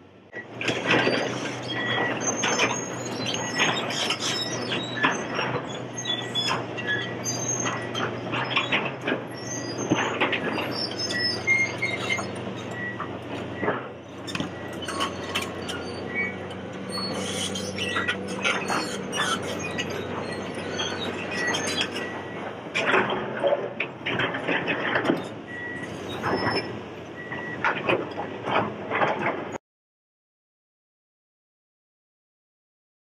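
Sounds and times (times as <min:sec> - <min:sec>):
diesel engine running: 0:00.0 - 0:29.6
steel bucket scraping on stone: 0:14.2 - 0:22.2.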